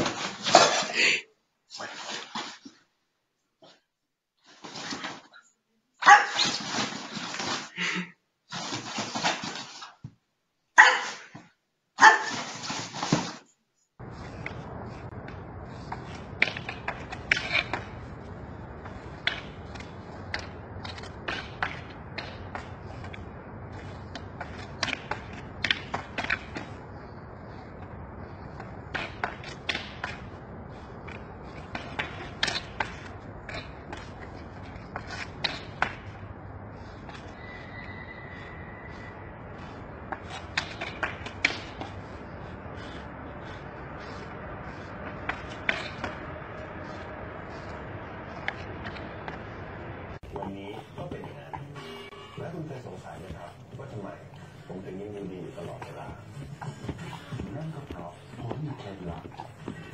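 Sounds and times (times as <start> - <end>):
low background noise: 9.8 - 59.9
wooden stick scraping on asphalt: 12.2 - 59.9.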